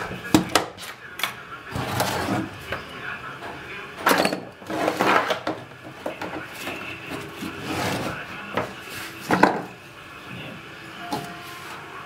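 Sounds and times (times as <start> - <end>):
cable scraping over wooden bench: 1.8 - 2.5, 7.4 - 8.2.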